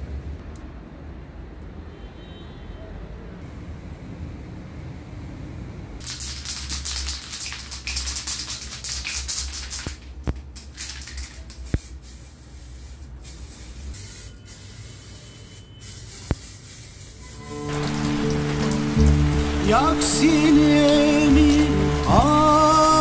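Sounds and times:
spray can hissing: 0:06.0 - 0:23.0.

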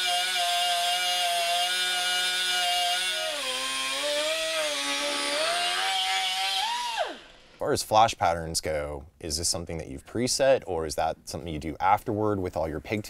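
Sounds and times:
cut-off wheel whining through metal: 0:00.0 - 0:07.6.

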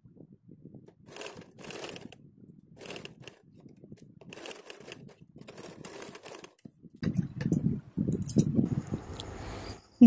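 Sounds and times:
sewing machine stitching: 0:01.0 - 0:02.2, 0:02.8 - 0:03.5, 0:04.2 - 0:06.7.

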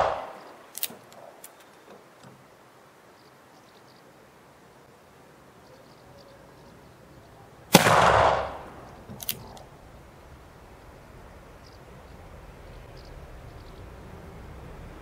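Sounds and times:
sharp clicks: 0:00.0 - 0:02.4, 0:07.8 - 0:09.7
revolver shot: 0:07.8 - 0:08.7.

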